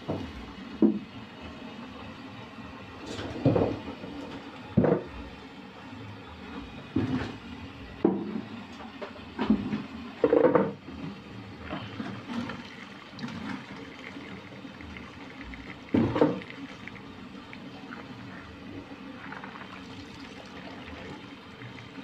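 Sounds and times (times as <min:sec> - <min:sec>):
colander sloshing water: 0:11.0 - 0:22.0
beans and water pouring: 0:19.1 - 0:22.0.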